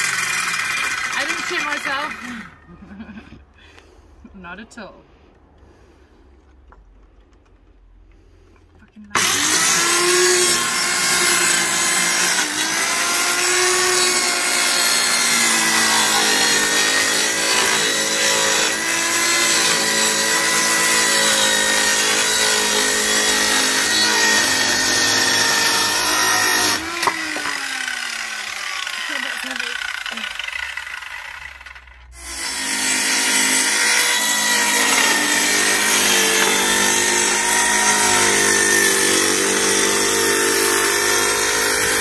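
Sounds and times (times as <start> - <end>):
circular saw cutting wood: 0.0 - 3.1, 9.1 - 42.0
saw blade spinning down whine: 9.2 - 42.0.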